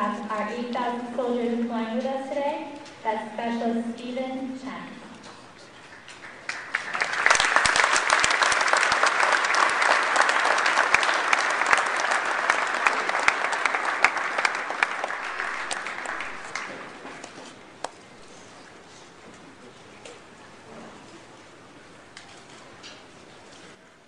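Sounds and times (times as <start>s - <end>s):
crowd applauding: 5.7s - 18.0s.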